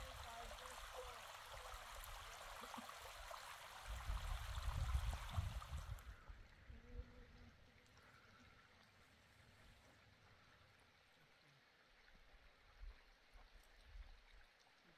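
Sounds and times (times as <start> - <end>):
stream running over rock: 0.0 - 14.9.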